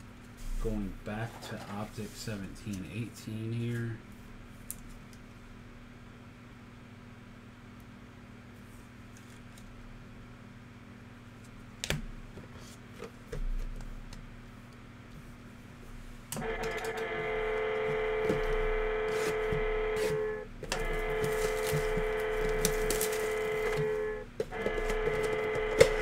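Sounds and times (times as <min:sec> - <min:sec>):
steady pitched tone: 0:16.4 - 0:26.0.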